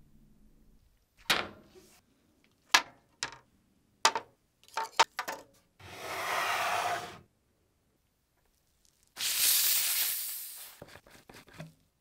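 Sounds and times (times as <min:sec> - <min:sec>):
steady hiss: 0:09.2 - 0:10.8.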